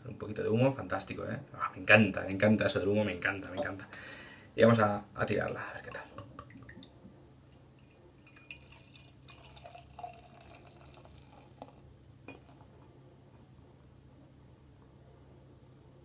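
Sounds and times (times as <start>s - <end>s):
beer pouring into glass: 5.8s - 12.8s.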